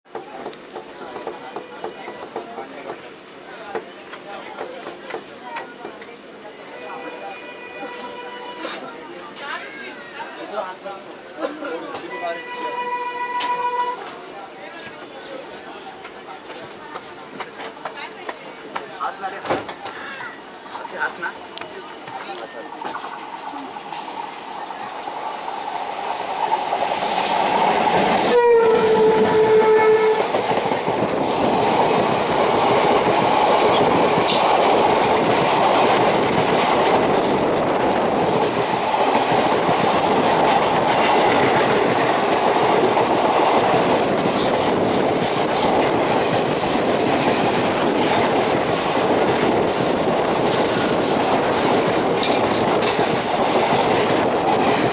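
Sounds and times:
train coaches rushing and rattling: 0.1s - 54.9s
diesel locomotive passing: 20.4s - 54.9s
diesel horn blast: 28.2s - 30.3s.

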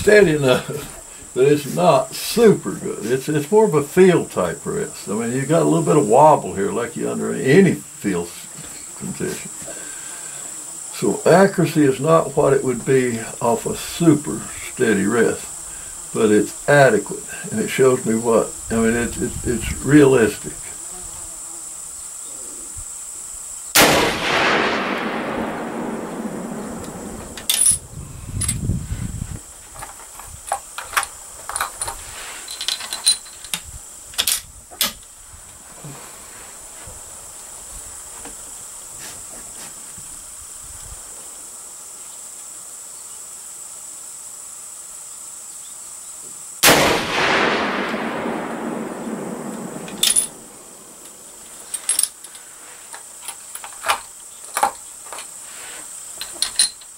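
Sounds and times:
high insect chirring: 0.0s - 35.6s, 36.5s - 56.9s
rifle shots echoing: 23.8s - 27.7s, 46.6s - 51.3s.

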